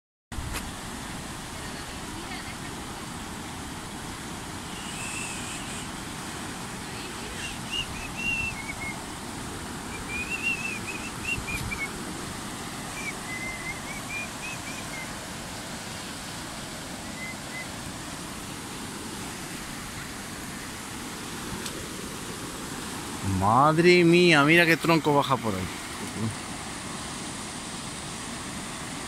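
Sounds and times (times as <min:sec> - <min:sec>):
river rushing: 0:00.4 - 0:29.0
small bird chirping: 0:07.4 - 0:09.0, 0:10.0 - 0:11.9.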